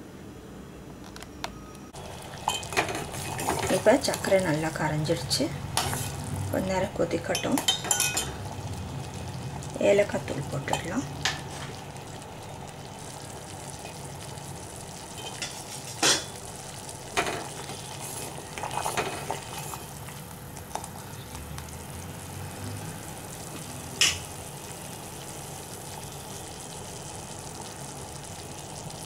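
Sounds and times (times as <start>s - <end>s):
syrup simmering and bubbling: 2.0s - 29.0s
spoon scraping pot: 2.4s - 4.3s, 5.8s - 6.2s, 17.3s - 19.9s
spoon clinking against pot: 7.3s - 8.4s.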